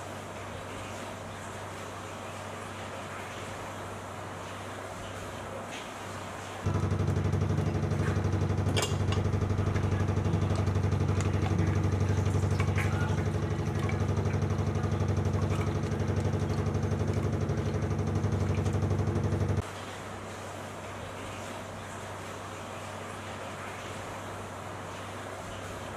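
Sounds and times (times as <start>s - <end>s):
motor-like drone: 6.7s - 19.6s.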